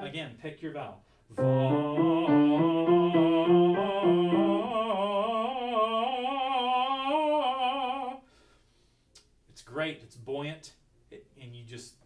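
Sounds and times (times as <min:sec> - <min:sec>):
man singing vocal warm-up: 0:01.3 - 0:08.2
piano accompaniment: 0:01.4 - 0:05.3.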